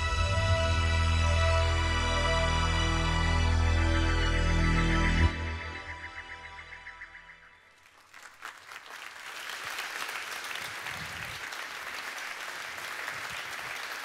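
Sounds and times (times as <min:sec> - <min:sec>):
music: 0:00.0 - 0:07.5
audience applauding: 0:07.7 - 0:14.0.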